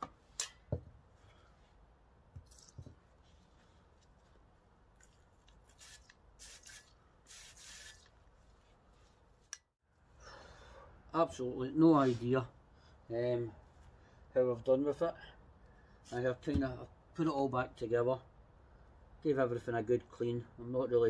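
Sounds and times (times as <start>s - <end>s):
aerosol spray can hissing: 5.7s - 8.1s.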